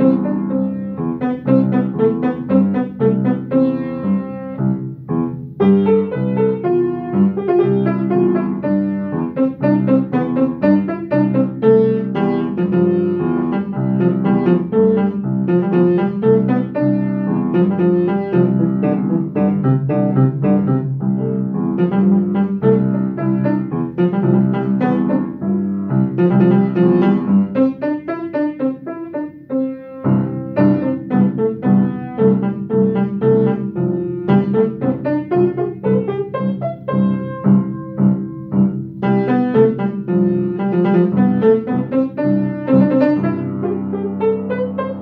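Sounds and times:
piano piece: 0:00.0 - 0:45.0.

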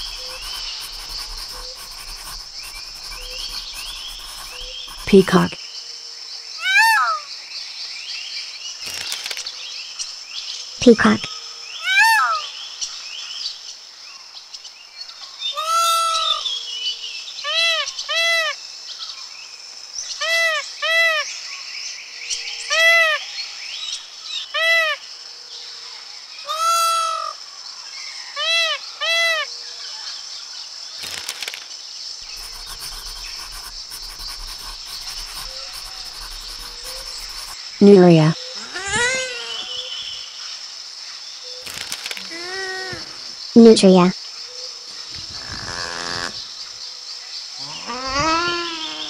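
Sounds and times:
peacock calling: 0:00.0 - 0:05.0, 0:26.5 - 0:27.3, 0:32.3 - 0:37.6
steady high hiss: 0:00.0 - 0:05.5.

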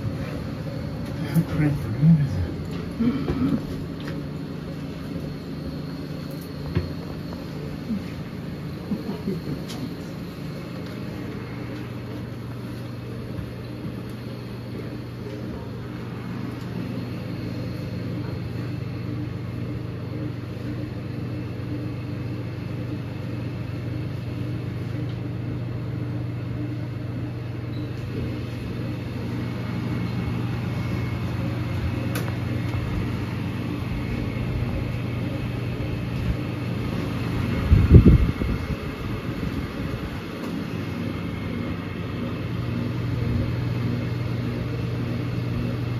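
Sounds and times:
low machine hum: 0:00.0 - 0:45.9.

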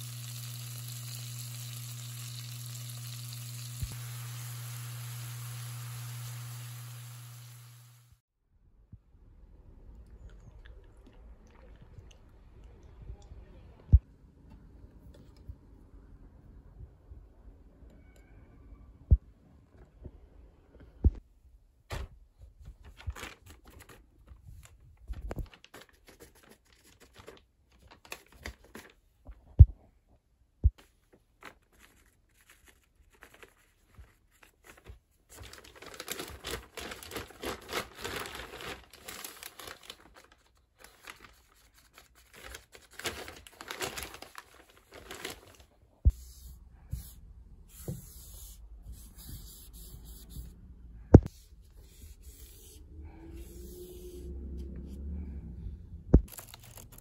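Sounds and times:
plastic bag rustling: 0:31.0 - 0:45.9, 0:56.3 - 0:57.0.

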